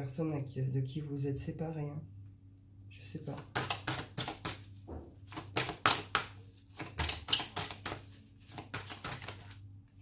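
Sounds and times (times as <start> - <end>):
cards flicking and slapping: 3.4 - 9.6.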